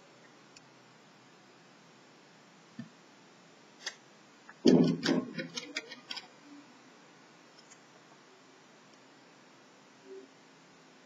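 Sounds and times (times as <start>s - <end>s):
dull knock on plastic: 4.6s - 5.6s.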